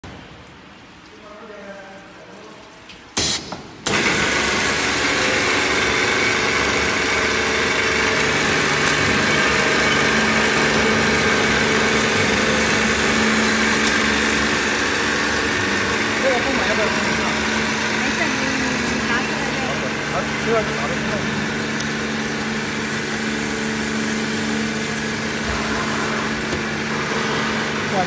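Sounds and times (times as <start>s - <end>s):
motor and pump humming: 3.2s - 28.0s
water spray hissing: 8.5s - 27.7s.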